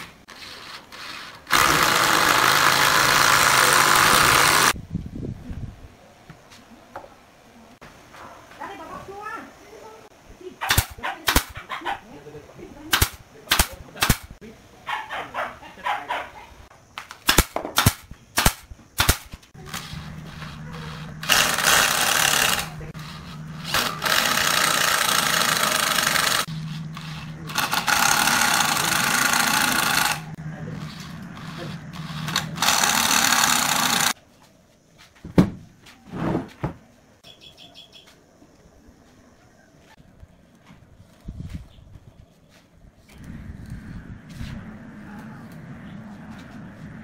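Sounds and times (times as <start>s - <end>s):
cordless drill driving screws: 0.3s - 4.8s, 19.7s - 30.3s, 31.4s - 34.2s
nail gun firing: 1.5s - 4.8s, 10.6s - 11.6s, 12.9s - 14.3s, 17.1s - 19.9s, 21.2s - 22.8s, 23.7s - 26.5s, 27.5s - 30.3s, 32.2s - 34.2s
knocks: 35.2s - 35.6s.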